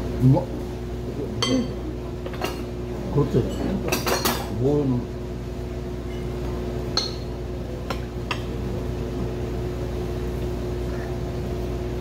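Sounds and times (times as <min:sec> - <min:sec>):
steady machine hum: 0:00.0 - 0:12.0
tableware clinks: 0:01.4 - 0:02.7, 0:03.5 - 0:04.5, 0:07.0 - 0:07.3.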